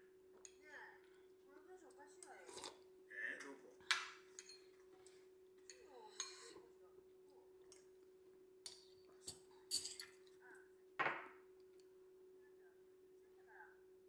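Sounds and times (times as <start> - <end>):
utensils clinking on ceramic bowls: 3.9 - 6.6, 8.6 - 10.4.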